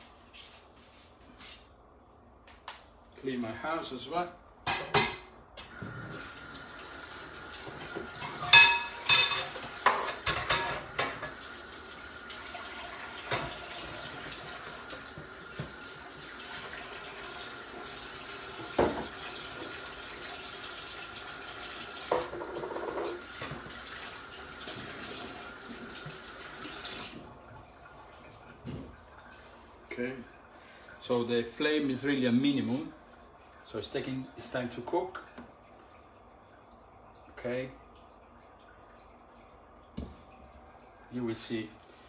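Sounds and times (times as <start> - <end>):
dishes and pans clinking: 4.6 - 5.4, 8.2 - 11.4
tap running: 13.2 - 16.7, 39.9 - 40.4.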